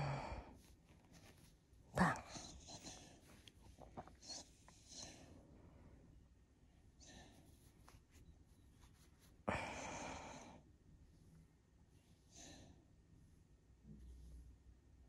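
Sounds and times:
dog breathing softly: 0:00.3 - 0:08.2.

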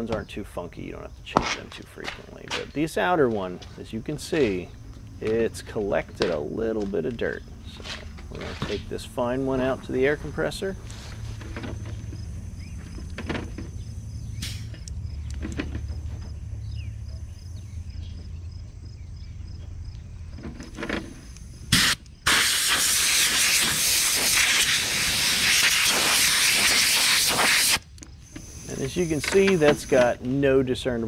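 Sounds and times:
compressed air hissing: 0:14.4 - 0:14.8, 0:21.1 - 0:30.1.

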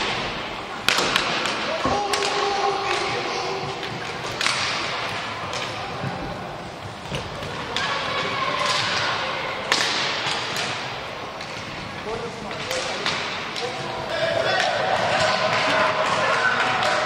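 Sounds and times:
sticks and ball clacking: 0:00.8 - 0:17.0.

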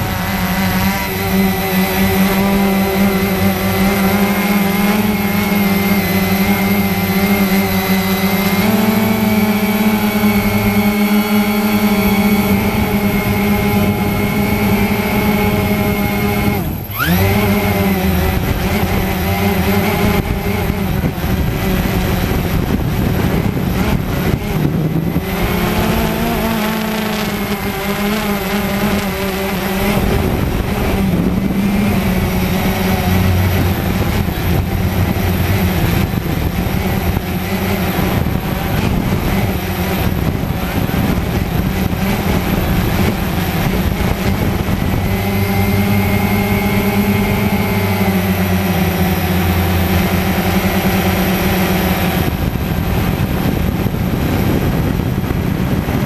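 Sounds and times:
drone motors whining: 0:00.0 - 0:56.0.

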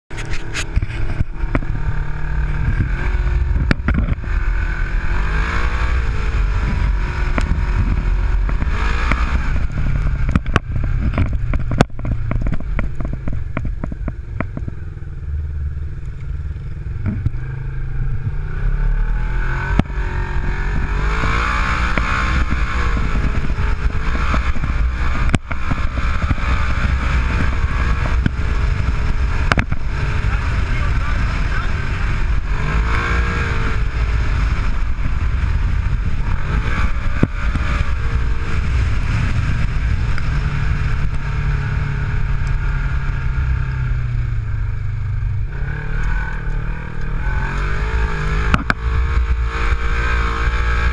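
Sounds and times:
chassis clattering over bumps: 0:00.1 - 0:50.9
utility vehicle engine revving: 0:00.1 - 0:50.9.

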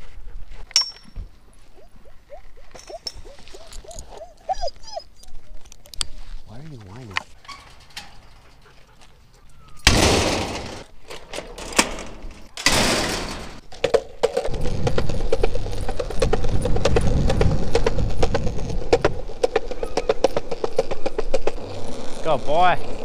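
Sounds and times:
loud clattering crashes: 0:09.8 - 0:13.7
skateboard wheels rumbling on concrete: 0:13.6 - 0:23.0.

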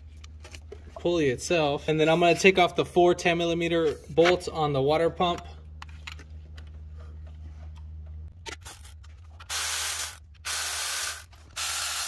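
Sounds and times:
ratchet clicking: 0:09.5 - 0:12.0.

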